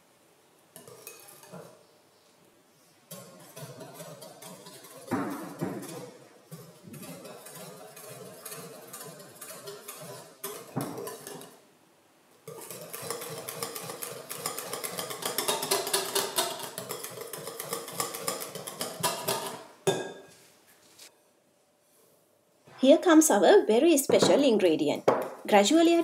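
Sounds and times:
whisk clinking against glass bowl: 3.1s - 11.6s, 12.5s - 20.2s.

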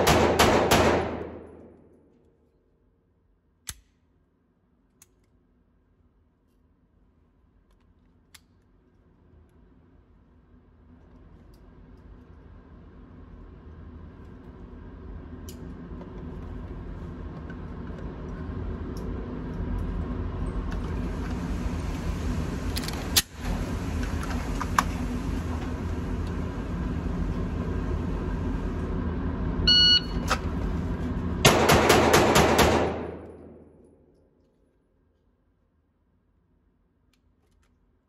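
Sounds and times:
pistol shots: 0.0s - 1.7s, 31.5s - 33.6s
shot timer beep: 29.7s - 30.2s.

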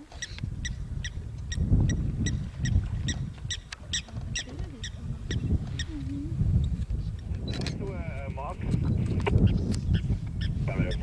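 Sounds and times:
leopard lapping water: 1.1s - 7.1s.

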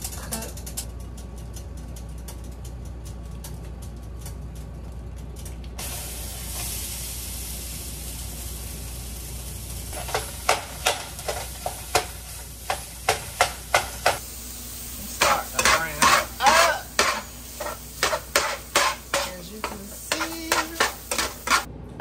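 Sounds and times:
sausage sizzling: 5.8s - 21.7s
metal spatula scraping pan: 15.2s - 21.7s.

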